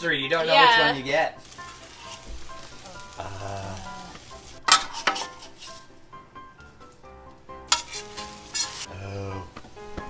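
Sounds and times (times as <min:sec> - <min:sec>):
background music: 0:00.0 - 0:10.0
griddle sizzling: 0:00.0 - 0:10.0
metal spatula scraping griddle: 0:01.4 - 0:06.0, 0:07.7 - 0:08.9.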